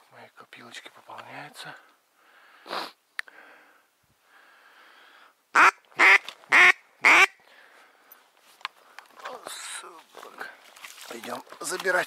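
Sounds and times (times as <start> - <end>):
duck quacking: 5.5 - 7.4.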